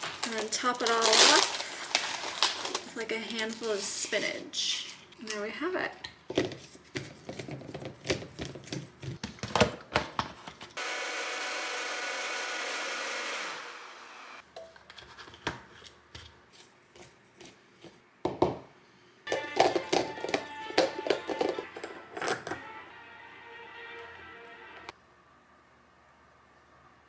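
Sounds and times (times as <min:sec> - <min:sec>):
blender motor running: 0:10.8 - 0:14.4.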